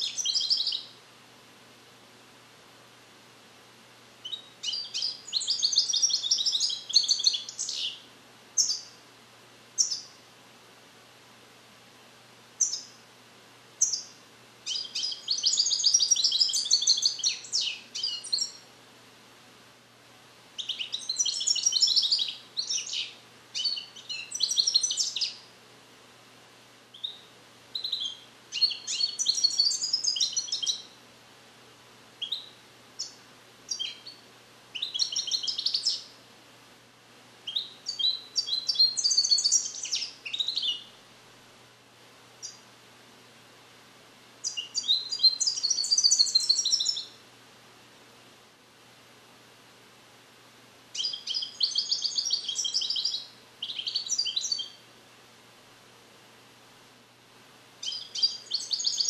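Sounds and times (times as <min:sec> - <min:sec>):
goldfinch singing: 0:00.0 - 0:00.9, 0:04.2 - 0:08.0, 0:08.6 - 0:09.0, 0:09.8 - 0:10.1, 0:12.6 - 0:13.0, 0:13.8 - 0:18.6, 0:20.6 - 0:25.5, 0:26.9 - 0:31.0, 0:32.2 - 0:34.2, 0:34.8 - 0:36.1, 0:37.5 - 0:40.9, 0:44.4 - 0:47.2, 0:50.9 - 0:54.8, 0:57.8 - 0:59.0.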